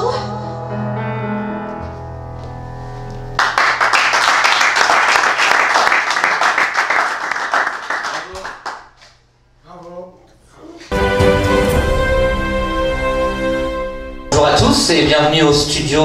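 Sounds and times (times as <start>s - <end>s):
audience clapping: 3.4s - 9.2s
held music chords: 10.9s - 16.0s.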